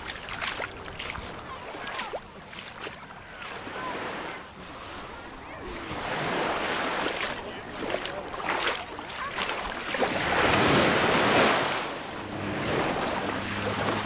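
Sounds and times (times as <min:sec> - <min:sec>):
waves washing over pebbles: 0:00.0 - 0:14.0
faint chatter of people: 0:00.2 - 0:10.5.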